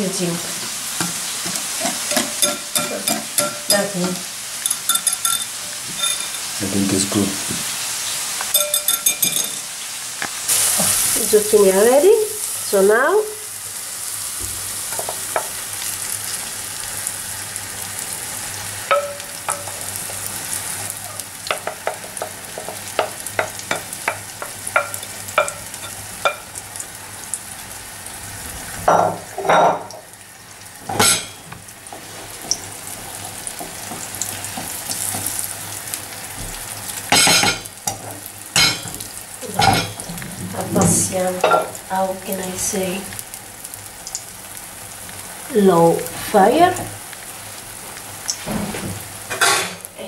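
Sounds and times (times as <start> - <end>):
batter sizzling in oil: 0.0 - 50.0
spoon tapping and scraping pan: 1.0 - 6.5, 8.4 - 11.0, 14.9 - 15.6, 18.9 - 20.3, 21.4 - 26.5.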